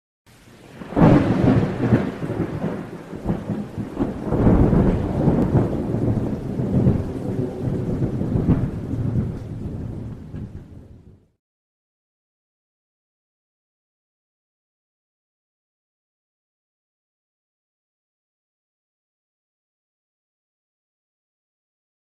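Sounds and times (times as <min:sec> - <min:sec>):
steady rain: 0:00.3 - 0:11.4
rumbling thunder: 0:00.6 - 0:11.4
sharp thunder cracks: 0:00.7 - 0:11.2.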